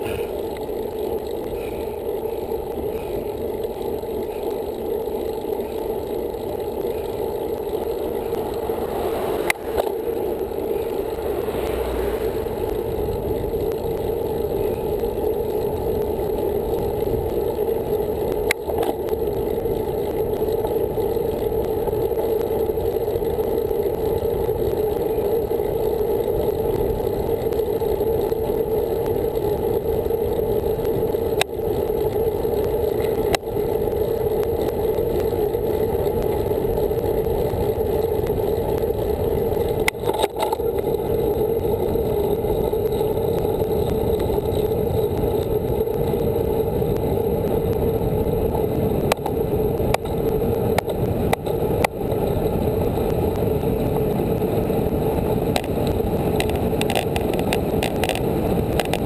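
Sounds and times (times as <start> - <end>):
bicycle tyre noise: 0.0 - 59.0
clicks from road bumps: 0.0 - 59.0
wind rush: 7.6 - 14.9.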